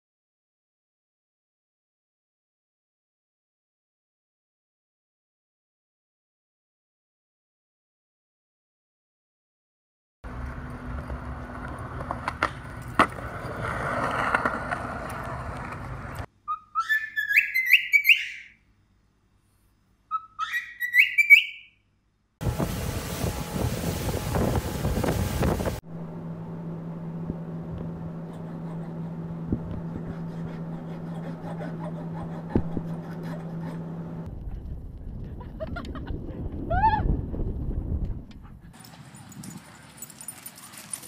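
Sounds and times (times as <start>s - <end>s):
cockatiel whistling: 16.5s - 18.5s, 20.1s - 21.7s
loud rushing noise: 22.4s - 25.8s
steady low hum: 22.4s - 35.7s.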